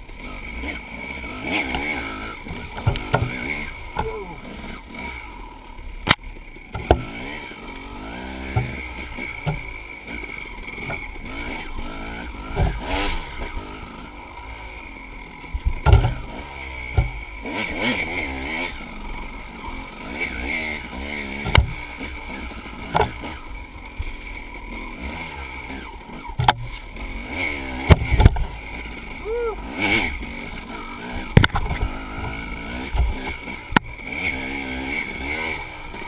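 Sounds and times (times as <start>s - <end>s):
dirt bike engine revving: 0.0s - 36.0s
bike knocking on bumps: 1.6s - 4.4s, 6.0s - 7.3s, 8.4s - 9.8s, 12.4s - 13.7s, 15.6s - 17.3s, 21.4s - 22.1s, 22.8s - 23.4s, 26.3s - 26.8s, 27.7s - 28.6s, 31.1s - 33.9s.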